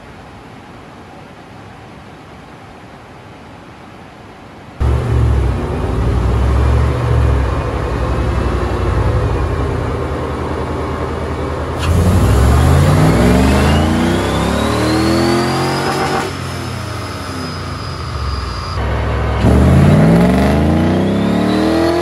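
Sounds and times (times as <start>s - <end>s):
car engine revving on a dyno: 4.8s - 10.3s, 11.8s - 22.0s
rising whine: 4.8s - 22.0s.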